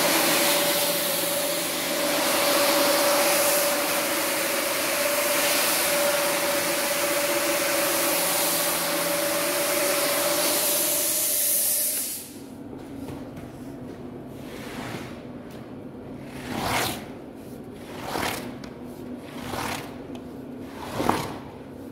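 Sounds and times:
floor scrubbing machine motor whine: 0:00.0 - 0:12.4.

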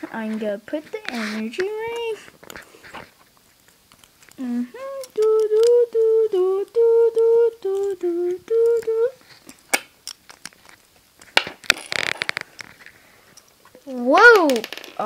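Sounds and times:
person humming: 0:04.4 - 0:09.2.

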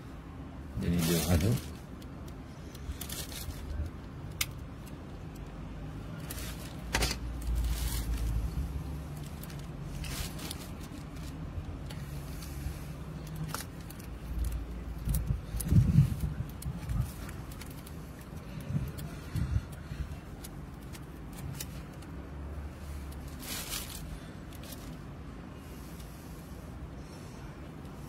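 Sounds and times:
constant low rumble: 0:00.0 - 0:28.0
wires and pliers clicking: 0:01.9 - 0:05.6.

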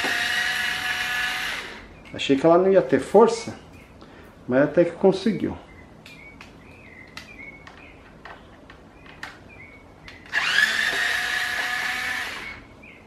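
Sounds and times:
electric screwdriver whining: 0:00.0 - 0:01.8, 0:10.2 - 0:12.6.

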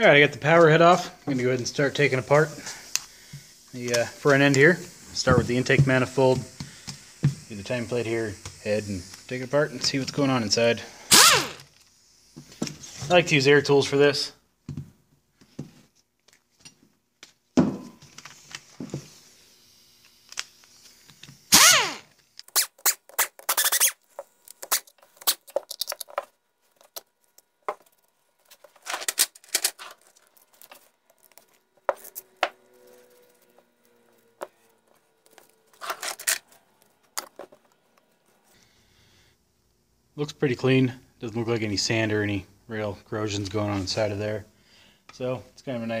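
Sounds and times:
metal parts clinking and scraping: 0:24.5 - 0:33.6, 0:34.9 - 0:37.7.

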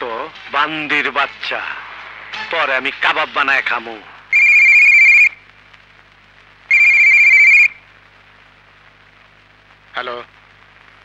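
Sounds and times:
telephone ringing: 0:04.3 - 0:05.4, 0:06.7 - 0:07.8.

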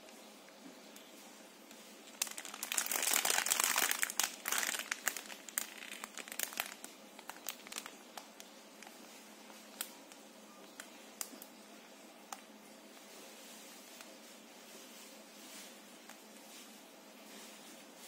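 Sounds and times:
plastic wrapper crinkling: 0:01.7 - 0:11.5.

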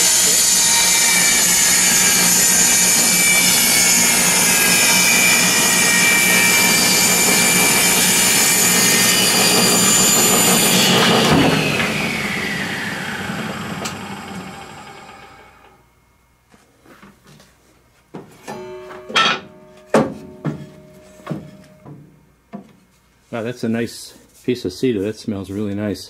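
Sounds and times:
table saw ripping a board: 0:00.0 - 0:15.6
knock: 0:19.9 - 0:22.0.

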